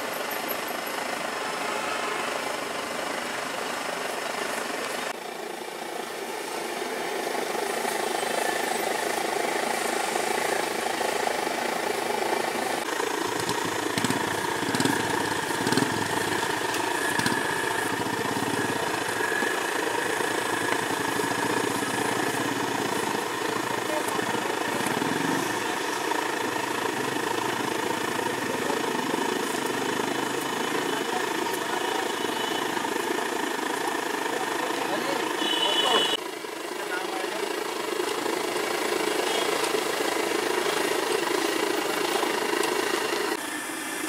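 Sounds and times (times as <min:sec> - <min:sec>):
engine idling: 0:00.0 - 0:44.0
street background noise: 0:00.0 - 0:44.0.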